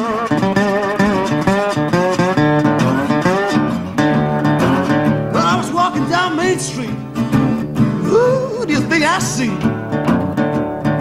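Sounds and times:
fingerpicked resonator guitar: 0.0s - 11.0s.

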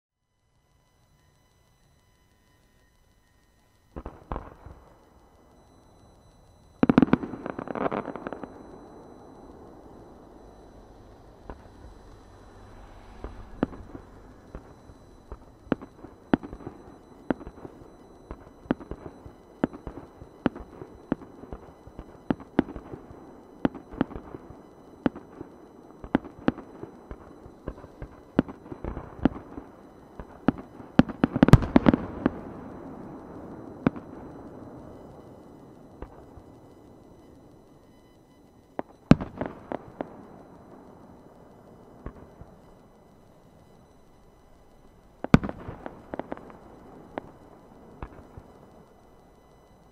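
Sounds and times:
firework shells bursting: 6.6s - 35.0s, 43.4s - 49.0s.

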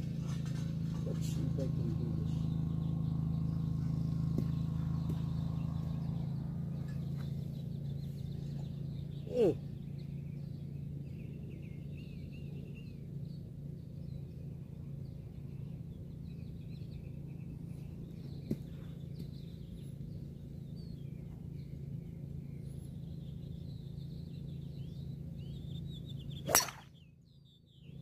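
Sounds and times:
birds chirping: 0.0s - 28.0s
steady low hum: 0.0s - 28.0s
golf ball struck by driver: 4.2s - 6.1s, 26.4s - 27.0s.

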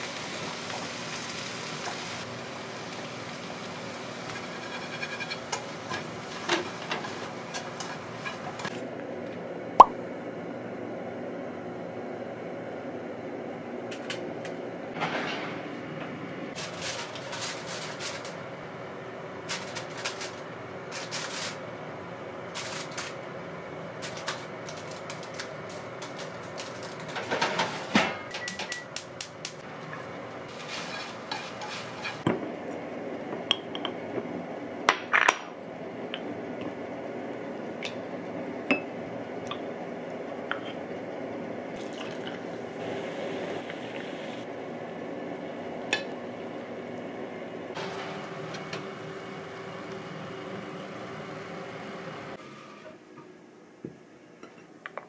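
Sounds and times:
utensils scraping frying pan: 4.0s - 8.7s, 30.5s - 32.3s.

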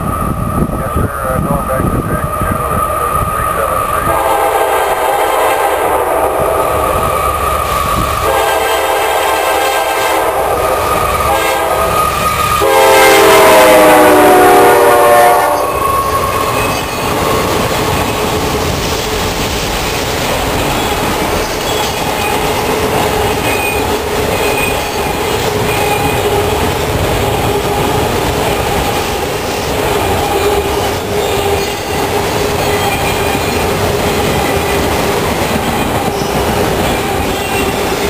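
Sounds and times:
train cars rolling on rails: 0.0s - 38.0s
locomotive air horn: 4.0s - 6.6s, 8.2s - 10.6s, 11.2s - 16.0s.

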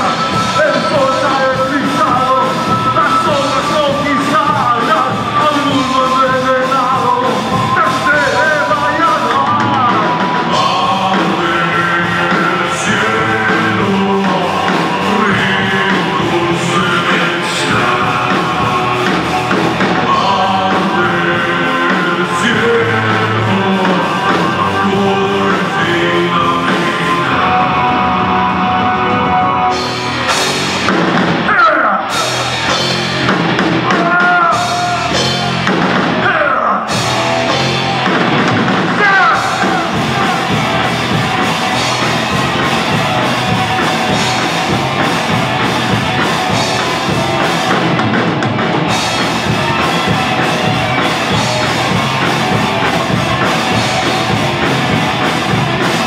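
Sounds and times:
person singing: 0.0s - 32.9s, 38.9s - 56.0s
heavy rock band playing: 0.0s - 56.0s
bending lead guitar line: 36.9s - 56.0s.

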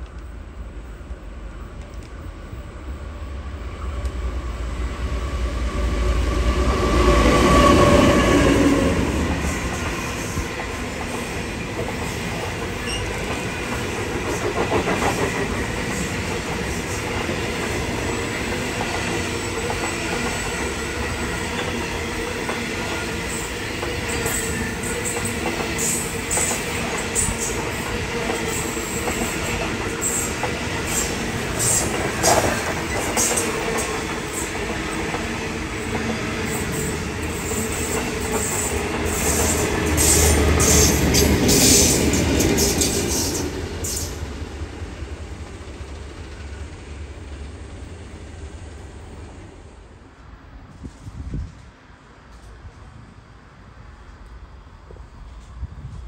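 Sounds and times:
train wheels clicking over rail joints: 9.2s - 47.9s
wheel squeals: 12.8s - 13.2s.

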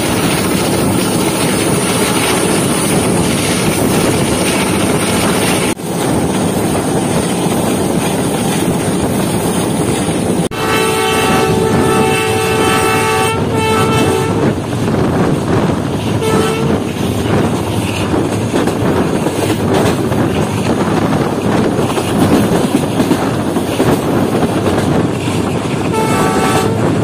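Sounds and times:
train running at speed: 0.0s - 27.0s
locomotive multi-tone horn: 10.5s - 14.6s, 16.2s - 16.9s, 25.9s - 27.0s.

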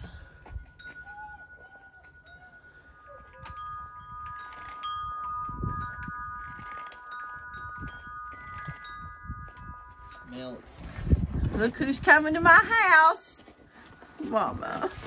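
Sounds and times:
wind chimes ringing: 0.0s - 15.0s.

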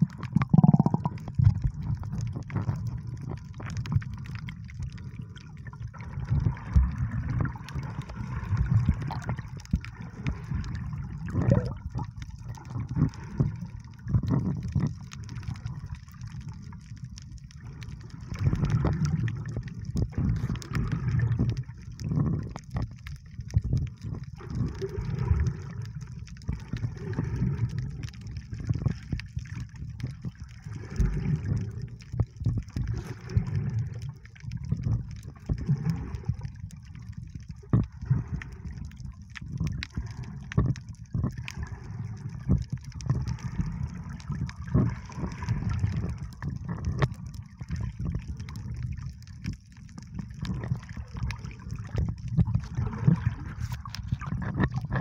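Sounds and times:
bubbling hiss: 0.0s - 4.1s, 5.1s - 14.6s
muffled underwater water rumble: 0.0s - 55.0s
underwater clicks and crackles: 0.0s - 55.0s.

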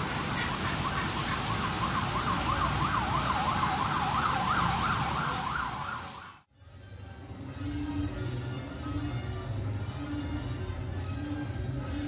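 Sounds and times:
siren yelping: 0.0s - 6.4s
street noise: 0.0s - 12.0s.

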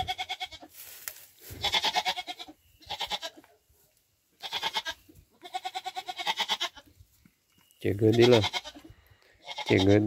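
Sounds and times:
goat bleating: 0.0s - 0.7s, 1.5s - 3.6s, 4.4s - 6.9s, 7.9s - 10.0s.

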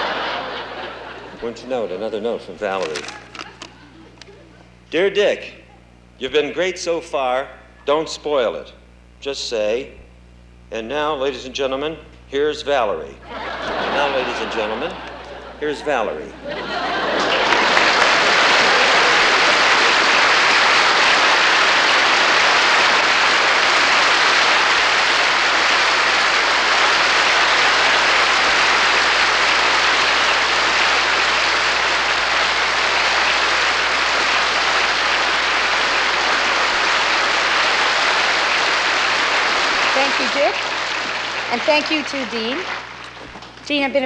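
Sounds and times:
audience clapping: 0.0s - 4.5s, 13.3s - 44.0s.

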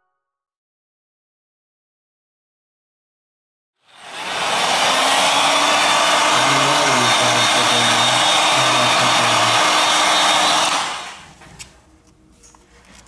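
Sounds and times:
heat gun blowing air: 3.9s - 11.4s.

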